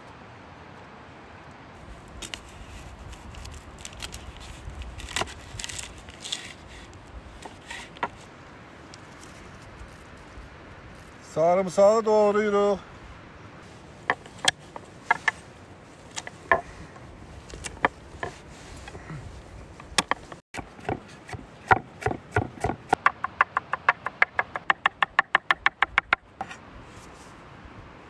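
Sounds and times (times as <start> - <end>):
knife chopping on wooden board: 20.0 - 26.6.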